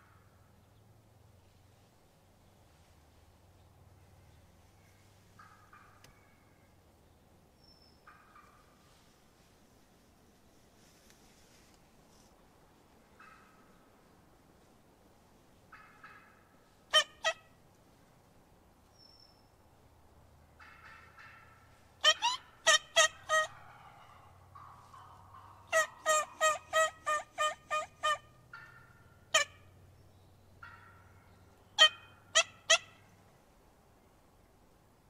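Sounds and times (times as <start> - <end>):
soft raspy turkey calls: 0.0 - 0.8, 2.4 - 6.8, 7.6 - 18.2, 20.5 - 33.5
turkey yelping: 5.4 - 6.4, 15.7 - 17.5, 20.6 - 29.7, 30.6 - 33.1.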